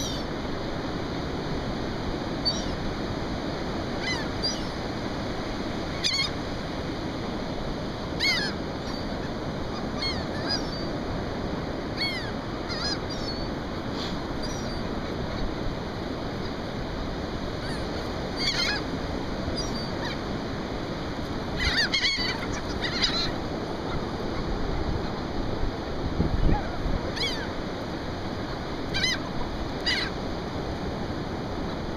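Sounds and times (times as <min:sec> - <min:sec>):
gulls squawking: 0:00.0 - 0:00.3, 0:02.4 - 0:02.8, 0:04.0 - 0:04.8, 0:05.9 - 0:06.4, 0:08.1 - 0:11.0, 0:11.8 - 0:16.6, 0:17.5 - 0:20.3, 0:21.4 - 0:25.2, 0:26.4 - 0:27.6, 0:28.9 - 0:30.2
wind noise: 0:23.3 - 0:28.3.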